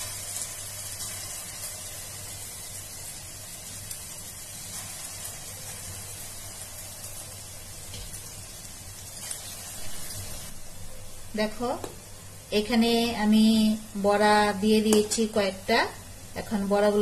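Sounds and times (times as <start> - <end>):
fine crackling of frying batter: 0.0 - 10.6
hot oil sizzling: 0.0 - 17.0.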